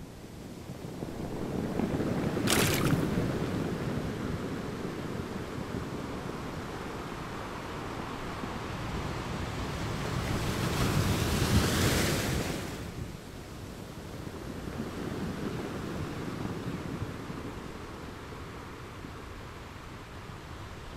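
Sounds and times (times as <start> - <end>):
waves washing: 1.4 - 3.9.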